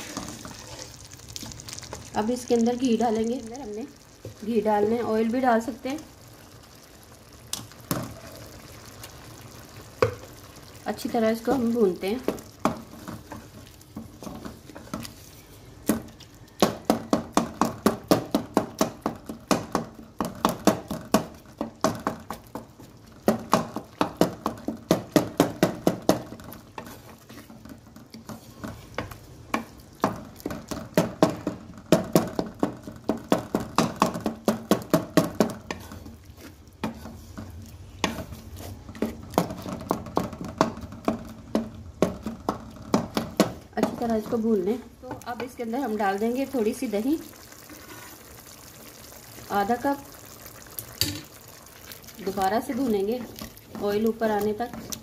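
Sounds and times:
wooden spatula scraping metal pot: 0:00.0 - 0:01.1, 0:23.6 - 0:32.9, 0:33.7 - 0:41.4, 0:42.2 - 0:48.4, 0:52.2 - 0:55.0
meat frying: 0:00.0 - 0:55.0.

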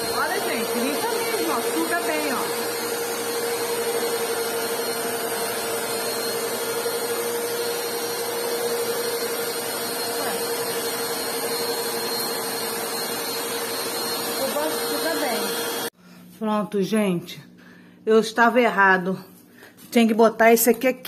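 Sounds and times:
vacuum cleaner running: 0:00.0 - 0:16.0.

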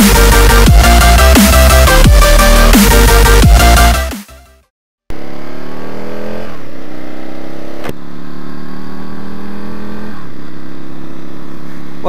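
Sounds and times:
motorcycle engine revving: 0:05.1 - 0:12.0.

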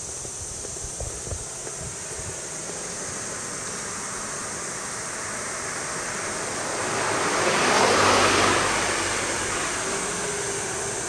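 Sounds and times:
steady background hiss: 0:00.0 - 0:11.0
vehicle passing by: 0:02.6 - 0:11.0.

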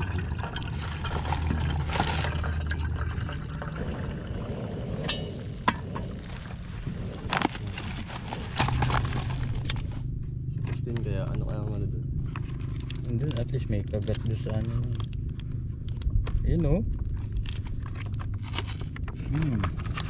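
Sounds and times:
water pouring into a metal tin: 0:00.0 - 0:04.4.

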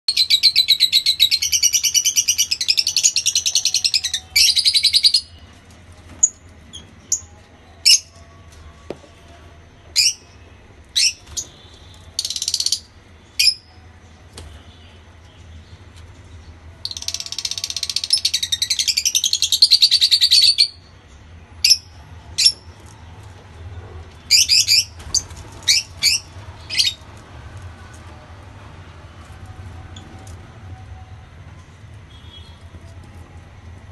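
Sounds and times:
lovebirds chattering: 0:24.0 - 0:27.1.

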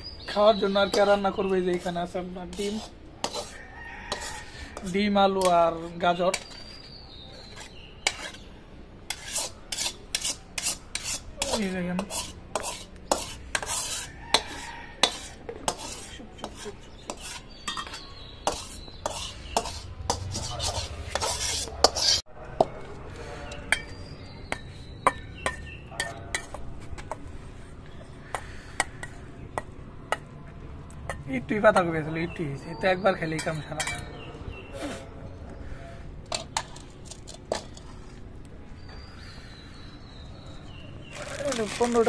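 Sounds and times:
spatula scraping steel bowl: 0:00.6 - 0:08.5, 0:09.1 - 0:27.2
metal utensils clinking on cookware: 0:09.1 - 0:22.2, 0:33.4 - 0:34.1.

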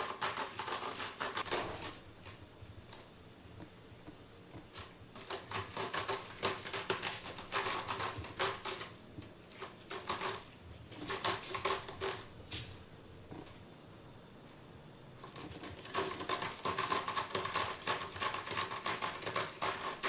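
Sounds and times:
cat claws scratching rope post: 0:00.0 - 0:02.0, 0:04.7 - 0:08.9, 0:15.2 - 0:20.0.

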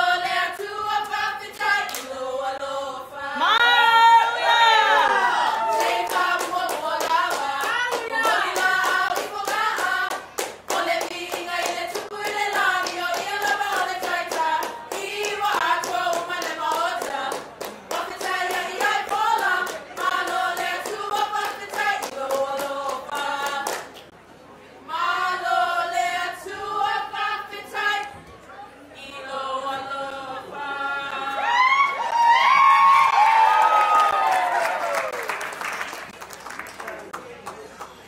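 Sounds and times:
group singing together: 0:00.0 - 0:24.2, 0:24.9 - 0:28.2, 0:29.0 - 0:31.8
quick hand clapping: 0:33.8 - 0:38.0.

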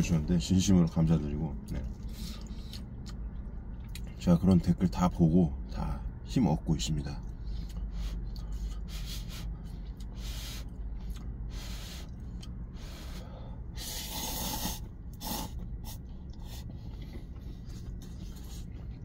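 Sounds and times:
person slurping noodles: 0:13.8 - 0:16.7.

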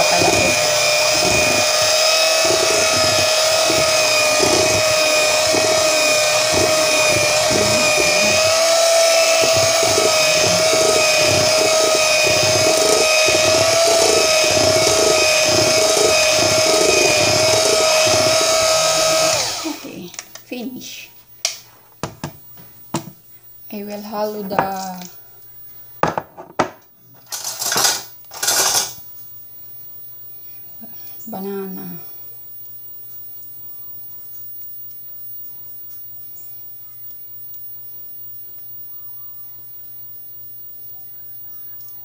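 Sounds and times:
electric hand mixer whining: 0:00.0 - 0:20.0.

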